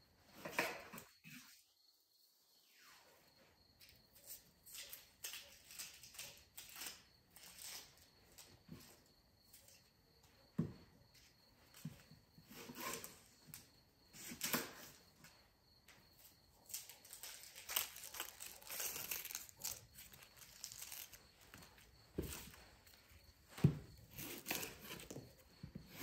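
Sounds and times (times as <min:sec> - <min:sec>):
onion skins crackling and tearing: 0:16.8 - 0:21.2.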